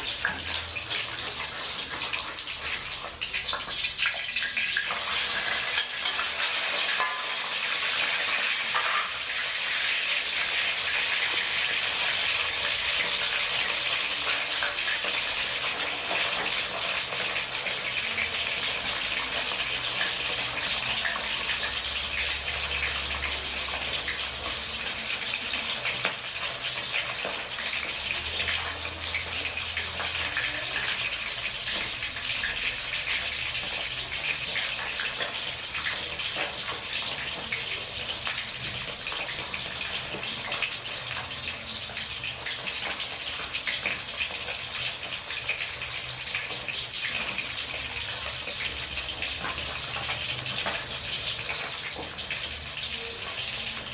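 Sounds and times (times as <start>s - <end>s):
fish sizzling in hot oil: 0.0s - 53.9s.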